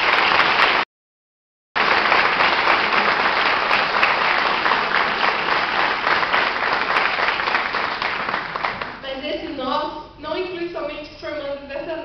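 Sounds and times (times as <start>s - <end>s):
audience applauding: 0.0s - 0.8s, 1.8s - 9.0s.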